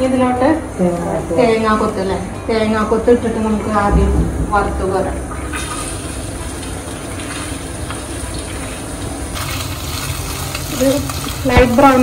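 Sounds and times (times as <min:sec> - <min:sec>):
coconut sizzling in hot oil: 0:05.4 - 0:12.0.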